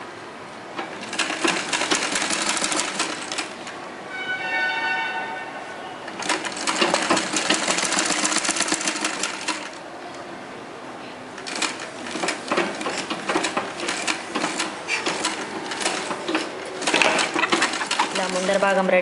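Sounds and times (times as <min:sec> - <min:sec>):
sewing machine clatter: 0:00.8 - 0:03.6, 0:06.2 - 0:09.8, 0:11.4 - 0:18.9.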